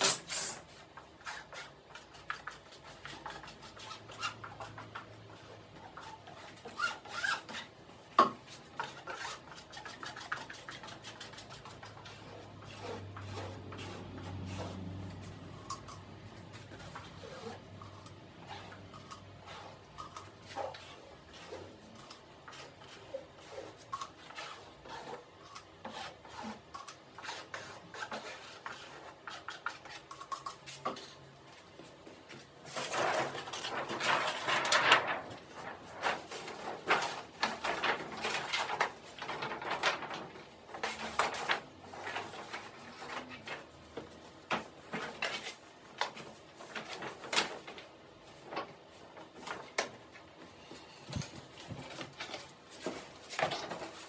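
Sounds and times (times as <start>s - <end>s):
plastic film rustling and crinkling: 32.5s - 49.9s.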